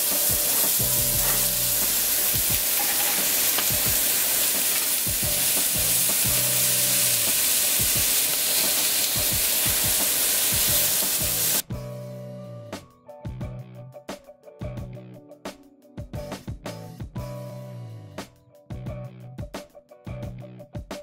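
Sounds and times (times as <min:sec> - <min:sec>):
vegetables sizzling in a frying pan: 0:00.0 - 0:11.6.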